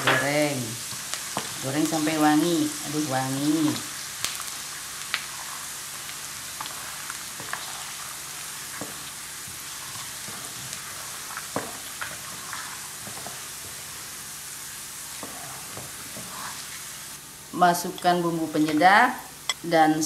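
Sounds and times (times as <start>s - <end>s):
garlic sizzling in hot oil: 0.0s - 19.6s
wooden spatula stirring: 5.1s - 14.0s, 15.0s - 16.8s.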